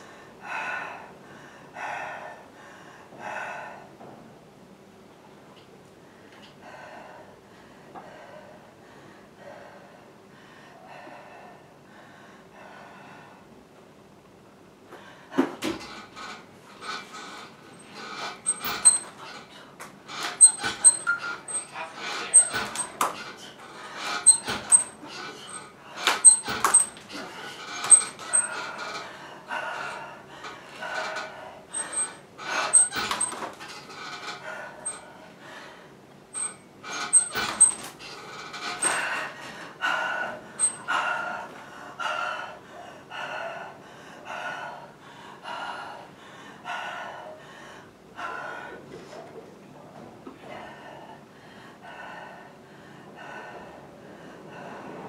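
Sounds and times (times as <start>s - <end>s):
heavy panting: 15.0s - 48.8s
short high squeaks: 16.0s - 19.4s, 20.1s - 23.0s, 23.8s - 27.0s, 27.6s - 28.9s, 31.8s - 35.0s, 36.4s - 39.1s.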